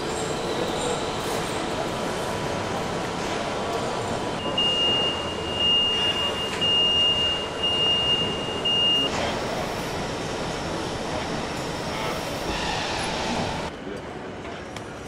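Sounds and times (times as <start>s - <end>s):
high warning buzzer tone: 4.4s - 9.1s, 11.8s - 12.4s.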